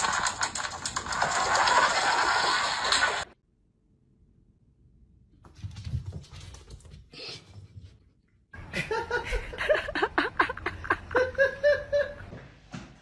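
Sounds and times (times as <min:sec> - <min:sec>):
person laughing hard: 0:08.6 - 0:12.3.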